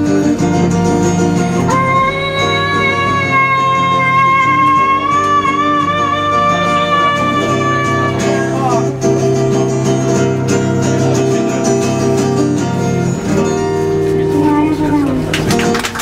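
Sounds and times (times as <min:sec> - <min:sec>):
acoustic guitar chords: 0:00.0 - 0:15.8
woman singing: 0:01.7 - 0:08.2.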